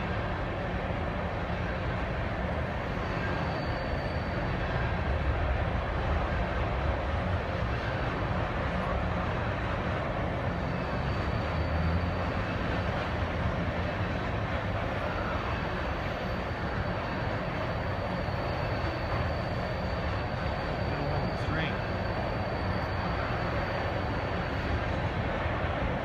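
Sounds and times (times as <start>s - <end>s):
steel wheels rolling on rail: 0.0s - 26.0s.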